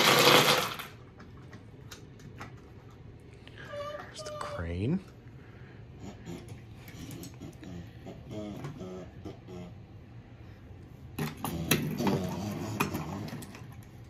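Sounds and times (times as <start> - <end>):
plastic toy trucks clattering: 0.0 - 1.4
child's quiet voice: 3.6 - 4.7.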